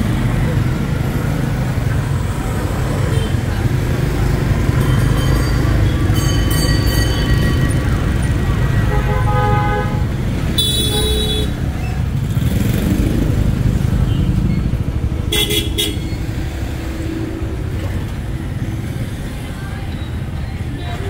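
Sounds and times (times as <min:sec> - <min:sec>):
motorbike and car engines: 0:00.0 - 0:21.0
vehicle horns tooting: 0:08.5 - 0:11.6, 0:15.3 - 0:16.2.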